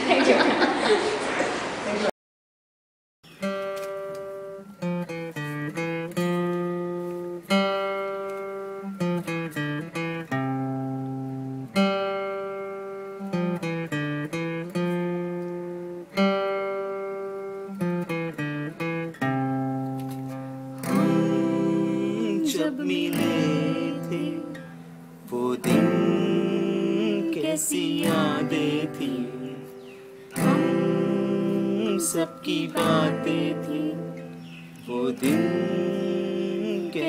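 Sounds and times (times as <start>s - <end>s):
acoustic guitar picking: 3.3s - 37.0s
person singing: 20.8s - 37.0s.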